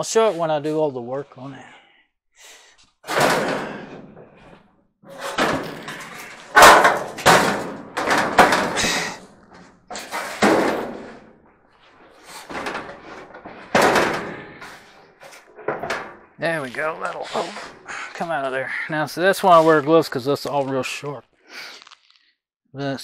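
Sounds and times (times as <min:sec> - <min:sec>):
sheet metal scrapes and knocks: 0:05.1 - 0:11.3, 0:12.1 - 0:16.3.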